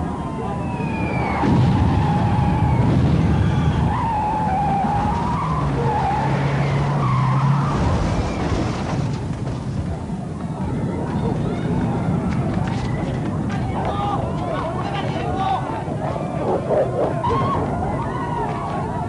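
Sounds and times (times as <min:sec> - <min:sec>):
truck engines running: 0:00.0 - 0:19.0
tyres squealing: 0:16.0 - 0:18.4.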